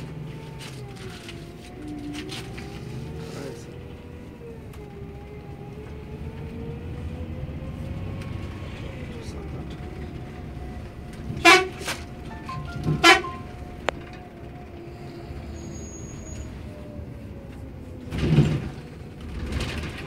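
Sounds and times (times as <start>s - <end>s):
engine and road rumble: 0.0s - 20.0s
bus horn blasts: 11.3s - 13.8s.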